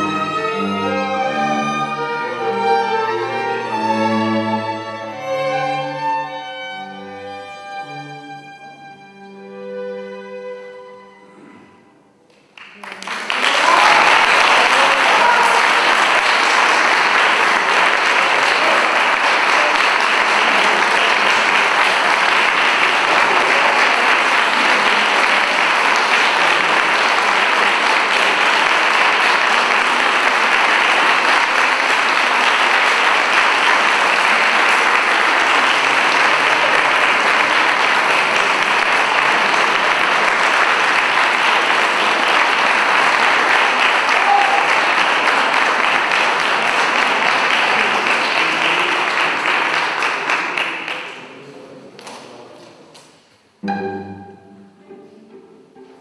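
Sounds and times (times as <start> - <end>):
audience applauding: 12.3 - 52.3.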